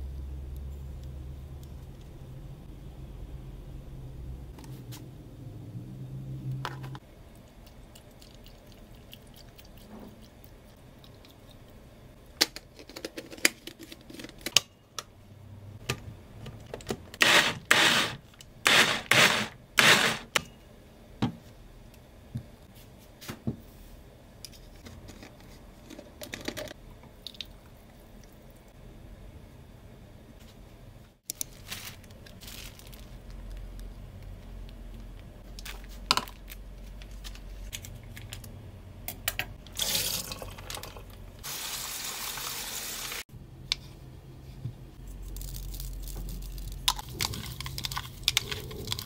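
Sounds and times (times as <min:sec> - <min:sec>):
blender running in bursts: 0:17.2 - 0:20.3.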